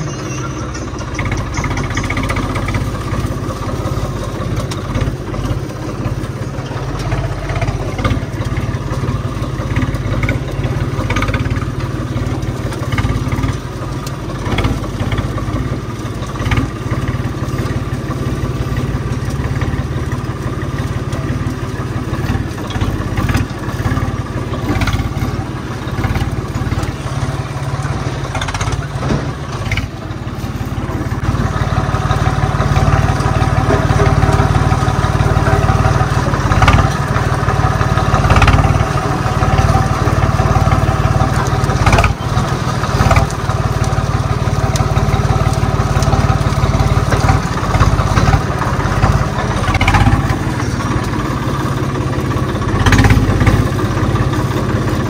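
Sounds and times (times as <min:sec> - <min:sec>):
tractor engine running: 0:00.0 - 0:55.0
knocks and rattles: 0:00.6 - 0:54.9.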